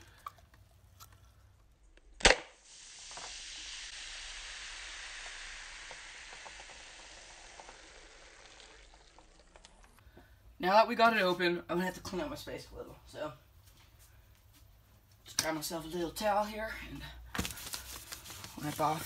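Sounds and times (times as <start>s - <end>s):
soda foam fizzing: 2.5s - 10.0s.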